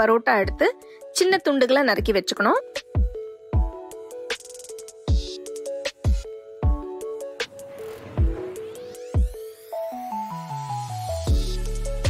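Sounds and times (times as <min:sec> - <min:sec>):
rising synth sweep: 0:07.0 - 0:11.2.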